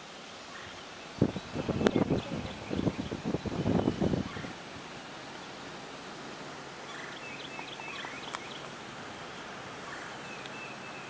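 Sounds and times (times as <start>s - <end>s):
rushing floodwater: 0.0s - 11.0s
wind: 0.0s - 11.0s
bird chirping: 6.8s - 8.7s.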